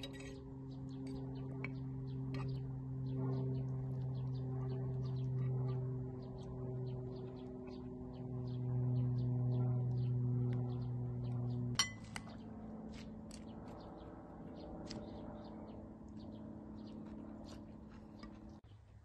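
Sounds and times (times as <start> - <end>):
droning background music: 0.0 - 17.6
spoon clinking against a bowl: 11.8 - 12.0.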